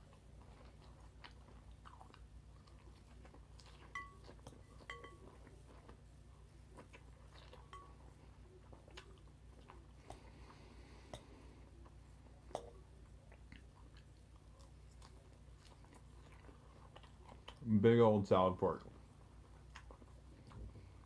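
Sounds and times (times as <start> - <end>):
chewing salad: 0.0 - 21.0
fork clinking against glass bowl: 3.9 - 5.5, 7.6 - 8.0.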